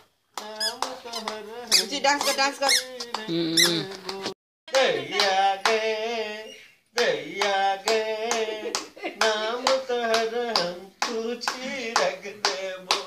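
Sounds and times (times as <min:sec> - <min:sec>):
rhythmic hand clapping: 0:00.3 - 0:03.3, 0:03.9 - 0:06.0, 0:07.0 - 0:13.0
person singing: 0:00.4 - 0:13.0.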